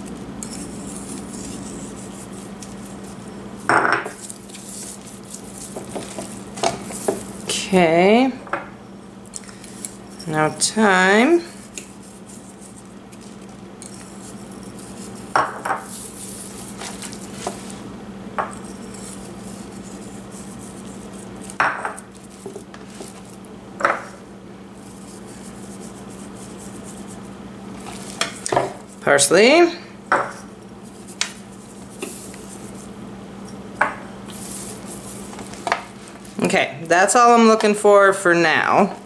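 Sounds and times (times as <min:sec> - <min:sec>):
hands rubbing herbs into meat: 0:00.0 - 0:07.6, 0:09.8 - 0:17.9, 0:18.6 - 0:23.6, 0:24.7 - 0:29.1, 0:30.7 - 0:33.0, 0:34.2 - 0:36.6.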